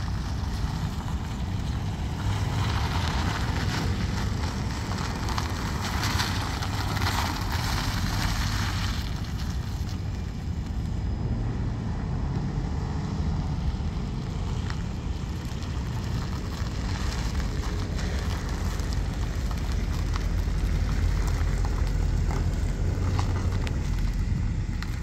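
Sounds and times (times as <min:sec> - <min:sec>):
tyre noise: 0:00.0 - 0:11.0
car engine rumble: 0:00.0 - 0:25.0
crackles from gritty pavement: 0:00.0 - 0:25.0.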